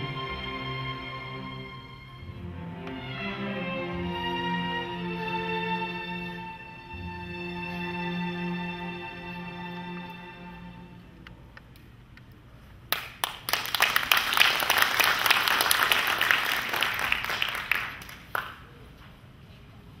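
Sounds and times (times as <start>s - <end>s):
string ensemble chord: 0.0s - 11.1s
audience applauding: 12.9s - 18.7s.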